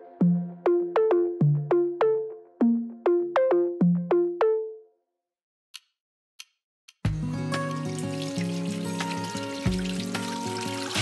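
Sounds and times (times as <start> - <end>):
electronic music notes: 0.0 - 4.8.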